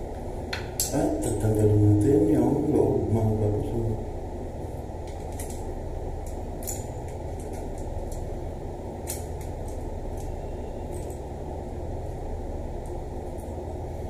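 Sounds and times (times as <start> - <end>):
small valve parts clicking: 6.2 - 8.3, 9.0 - 11.3.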